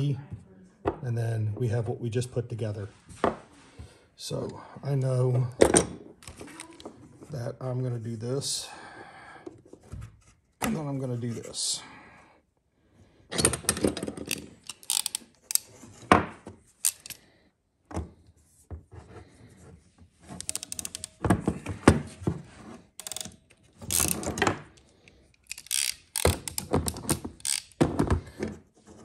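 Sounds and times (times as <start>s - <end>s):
crimping tool closing clamp: 13.6s - 15.7s, 16.8s - 17.2s, 20.4s - 21.2s, 23.0s - 24.5s, 25.4s - 27.8s.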